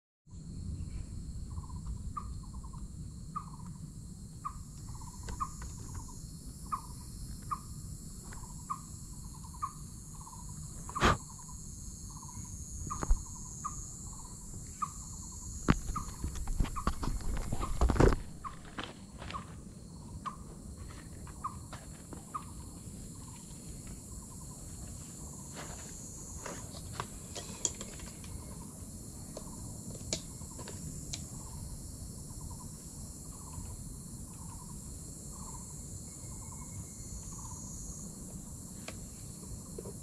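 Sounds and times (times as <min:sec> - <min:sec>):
low wind rumble: 0:00.3 - 0:11.5
high insect drone: 0:00.3 - 0:40.0.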